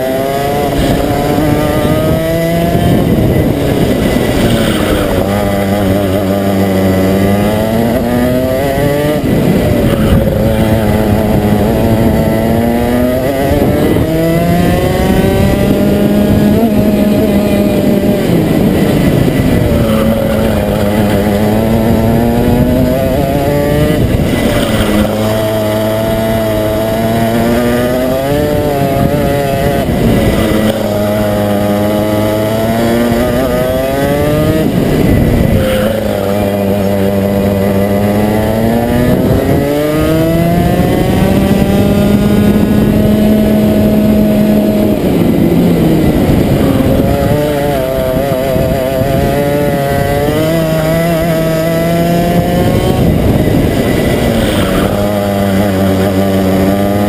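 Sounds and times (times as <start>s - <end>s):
kart engine revving: 0.0s - 57.0s.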